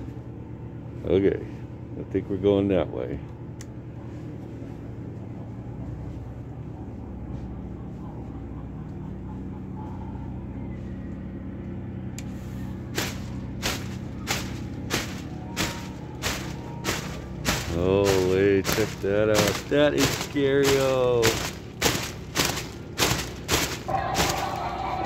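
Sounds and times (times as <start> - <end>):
low steady hum: 0.0 - 25.0
sharp repeating bangs: 12.9 - 25.0.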